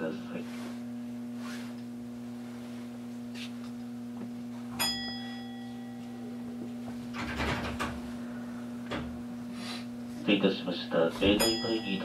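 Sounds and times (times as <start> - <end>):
electric train hum: 0.0 - 12.0
bell-like ding: 4.8 - 6.5, 11.4 - 12.0.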